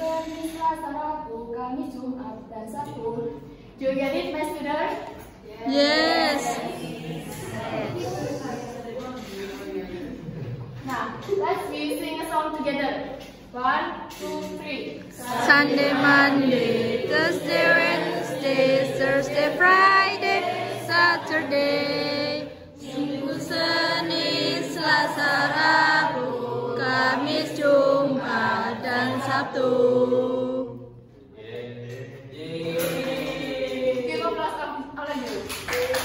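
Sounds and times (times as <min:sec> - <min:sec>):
group of people singing: 0:05.6 - 0:08.8, 0:15.0 - 0:34.2.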